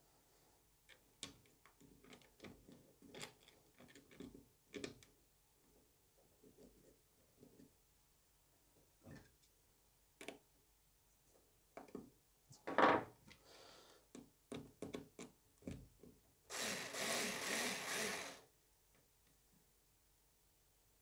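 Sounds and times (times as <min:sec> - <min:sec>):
cordless screwdriver running: 0:16.5 - 0:18.4.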